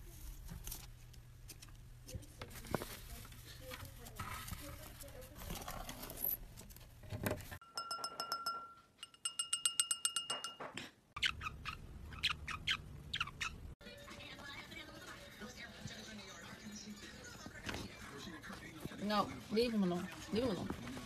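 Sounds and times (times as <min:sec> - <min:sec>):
beak tapping ringing glass: 0:07.6 - 0:10.8
parrot chirps: 0:11.2 - 0:13.8.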